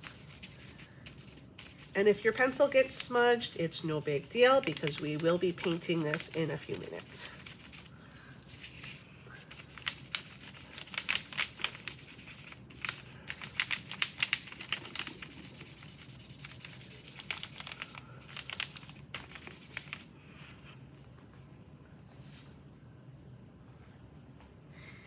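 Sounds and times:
pastel rubbing on paper: 0.0s - 7.9s, 8.5s - 20.1s.

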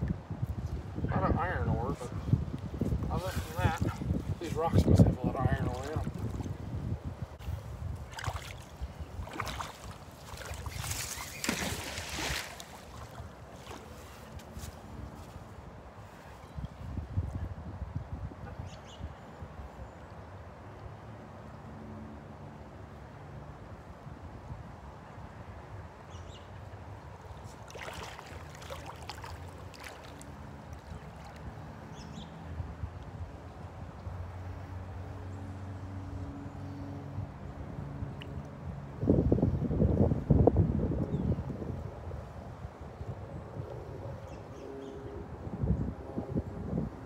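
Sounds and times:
wind on microphone: 0.0s - 20.0s, 37.0s - 47.0s
rush of water: 3.0s - 6.8s, 8.0s - 14.4s, 26.6s - 32.6s
water sloshing and dripping: 8.0s - 14.4s, 27.3s - 31.9s.

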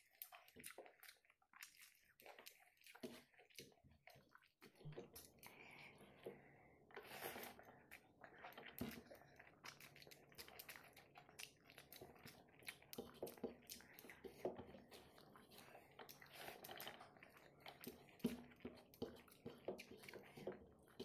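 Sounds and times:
person chewing food: 0.0s - 21.0s.

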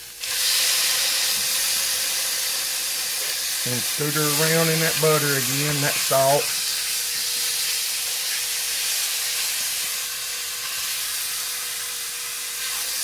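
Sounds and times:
steak sizzling in butter: 0.0s - 13.0s.

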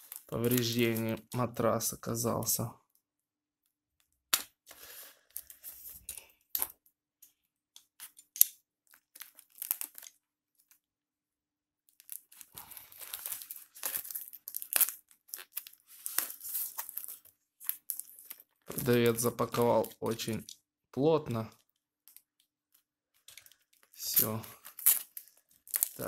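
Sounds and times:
plastic crinkling and tearing: 0.0s - 1.3s, 7.9s - 10.3s, 11.9s - 20.6s, 21.5s - 26.0s.

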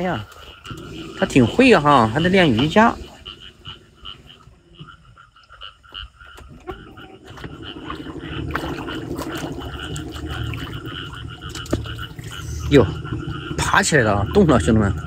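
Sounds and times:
frogs croaking: 0.0s - 15.0s
low steady hum: 6.4s - 15.0s.

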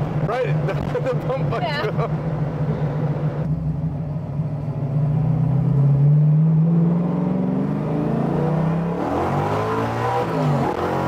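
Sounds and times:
car engine revving in cabin: 4.5s - 11.0s.

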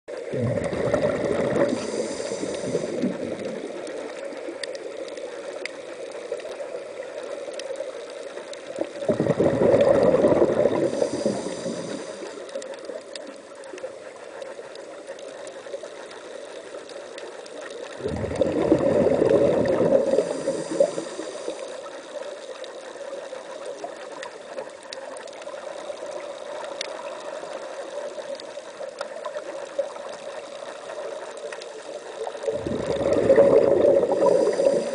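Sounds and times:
underwater bubbling rush: 0.1s - 34.9s
diver breathing through regulator: 0.3s - 3.5s, 9.1s - 12.6s, 18.0s - 22.0s, 32.5s - 34.9s.

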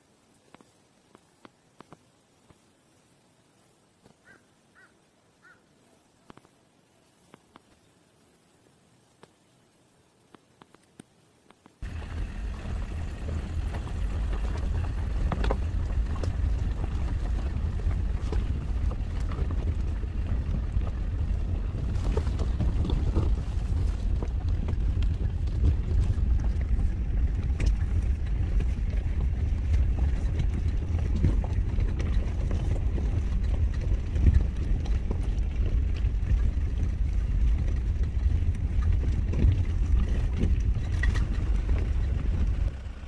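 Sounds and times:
car rumbling over gravel: 11.8s - 43.0s.

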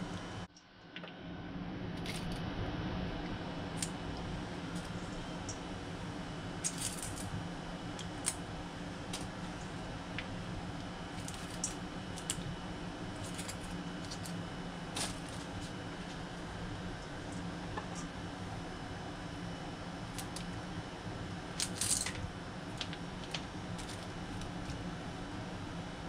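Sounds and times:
steady low hum: 0.0s - 26.0s
rustling in a plastic colander: 13.2s - 16.2s.

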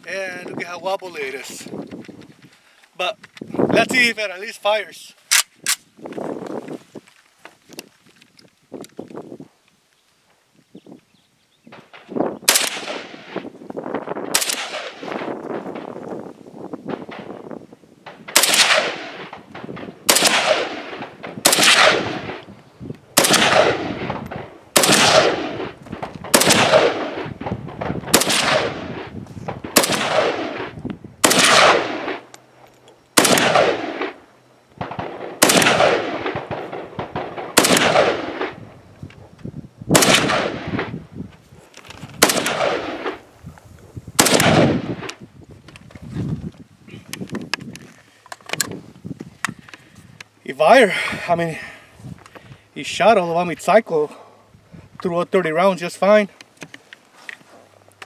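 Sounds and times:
rifle firing single shots: 5.3s - 5.8s, 11.7s - 13.5s, 14.2s - 16.0s, 18.0s - 32.3s, 33.1s - 38.8s, 39.9s - 41.1s, 42.1s - 43.3s, 44.1s - 45.2s
gunshot echo: 11.8s - 13.4s, 14.3s - 15.9s, 18.2s - 22.4s, 23.2s - 32.2s, 33.2s - 34.2s, 34.8s - 38.6s, 39.9s - 41.0s, 42.2s - 43.2s, 44.2s - 45.1s.

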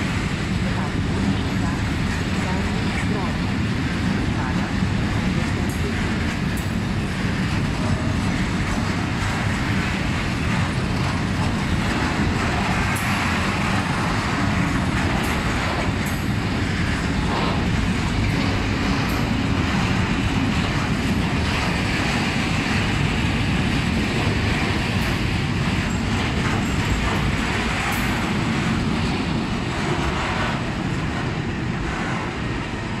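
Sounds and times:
freight train wheels rumbling: 0.0s - 33.0s
wheels and couplings clicking: 8.7s - 32.2s.

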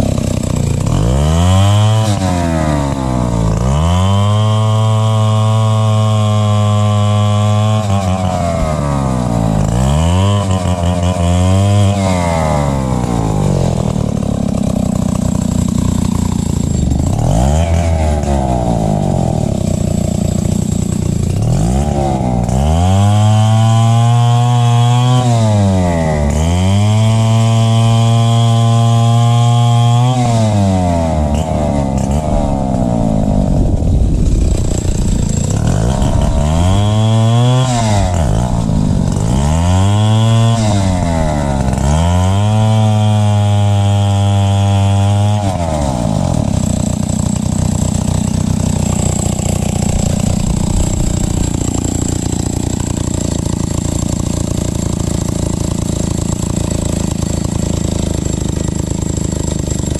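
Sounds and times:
chainsaw revving and idling: 0.0s - 59.9s.

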